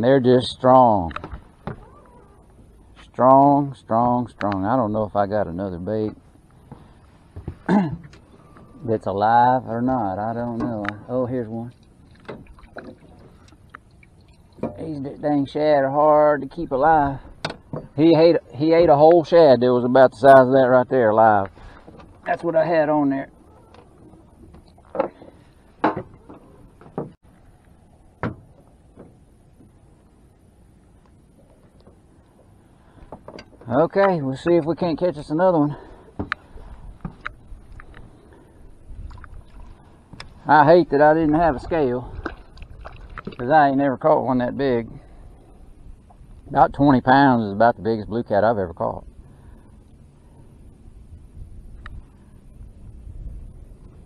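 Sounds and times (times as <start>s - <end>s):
knocks and clunks in boat: 0.8s - 2.2s, 6.0s - 13.8s, 14.5s - 15.2s, 16.4s - 19.2s, 21.3s - 22.7s, 23.4s - 27.3s, 28.0s - 30.0s, 31.4s - 35.2s, 35.9s - 38.1s
wind rumble on microphone: 36.2s - 48.3s, 48.9s - 54.0s.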